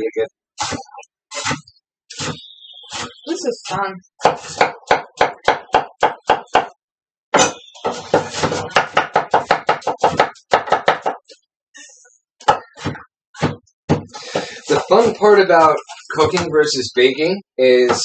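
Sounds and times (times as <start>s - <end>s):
knife chopping on wooden board: 1.4s - 3.2s, 4.2s - 6.8s, 7.4s - 11.2s.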